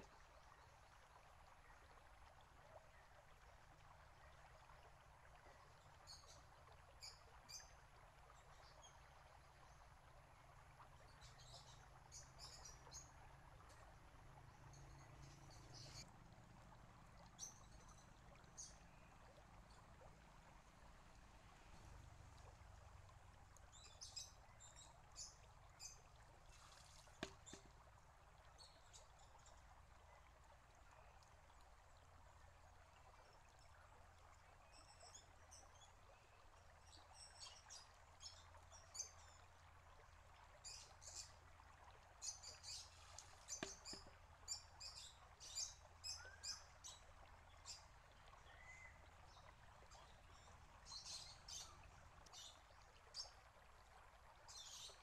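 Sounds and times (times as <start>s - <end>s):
water bubbling and trickling: 0.0s - 55.0s
bamboo tube knocking on rock: 27.2s - 27.8s, 43.6s - 44.1s.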